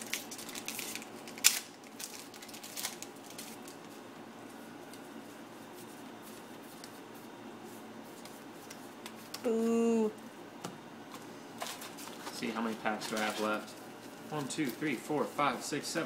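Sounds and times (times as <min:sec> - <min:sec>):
foil wrapper crinkling: 0:00.0 - 0:03.9.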